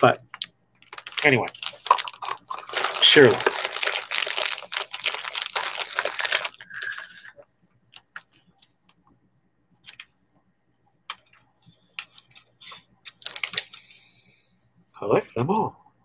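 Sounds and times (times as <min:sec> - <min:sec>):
packaging crinkling: 0:00.8 - 0:07.3, 0:13.1 - 0:14.0.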